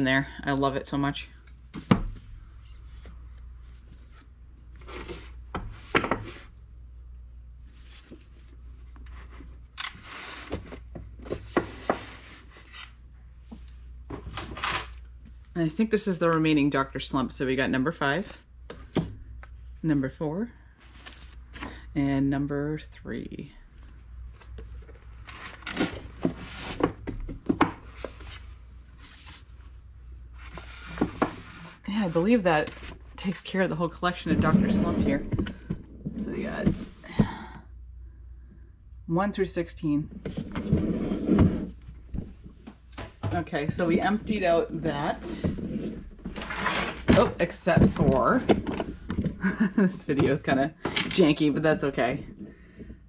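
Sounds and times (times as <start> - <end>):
books scraping on shelf: 3.8 - 6.6, 7.7 - 13.0, 25.2 - 29.6, 30.4 - 33.0, 34.2 - 37.0, 40.2 - 41.8, 43.4 - 49.0.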